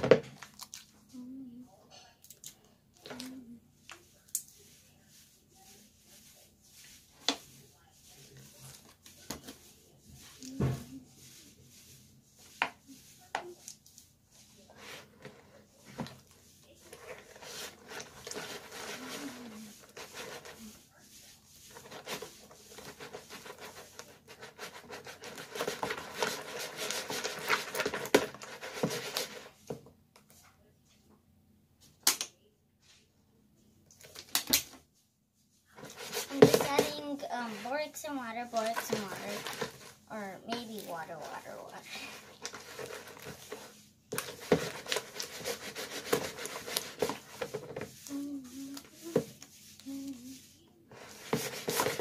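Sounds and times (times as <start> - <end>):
plastic spoon stirring slime: 2.0 - 31.0, 35.6 - 52.0.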